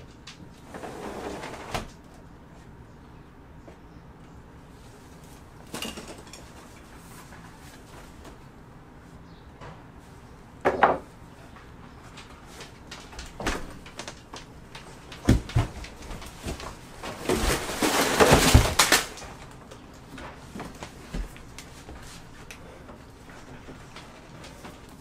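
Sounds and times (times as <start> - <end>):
scraping rustling scuffle: 13.4 - 19.4.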